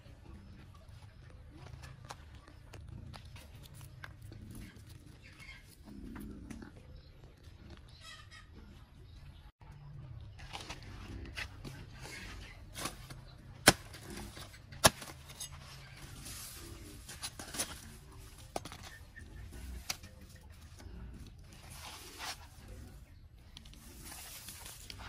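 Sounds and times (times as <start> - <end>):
leaves and stems rustling: 10.4 - 23.0, 23.6 - 25.0.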